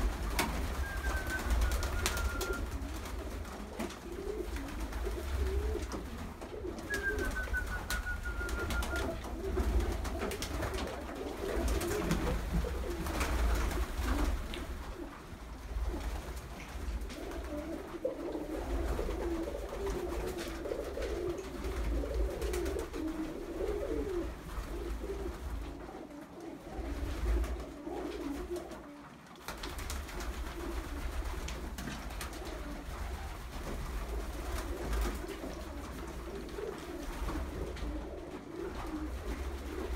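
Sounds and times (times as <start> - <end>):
pigeons cooing: 0.0 - 39.9
faint falling whistle: 0.8 - 2.6, 6.9 - 9.2.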